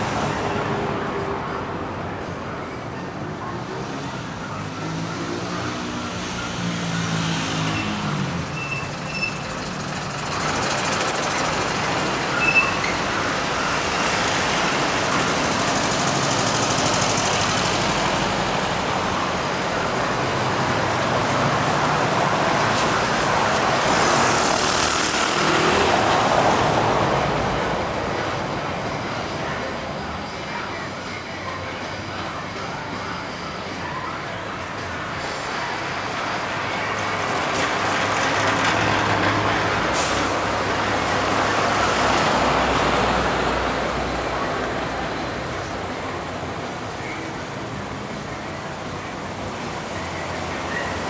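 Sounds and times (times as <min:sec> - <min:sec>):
road traffic passing: 0:00.0 - 0:51.0.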